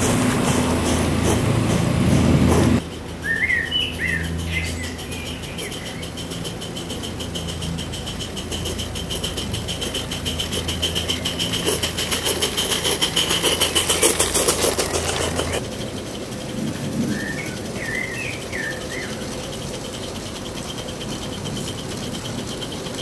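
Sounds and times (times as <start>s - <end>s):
steam hissing: 0.0s - 23.0s
steam locomotive exhaust beats: 0.0s - 23.0s
bird chirping: 2.8s - 12.3s, 17.0s - 22.8s.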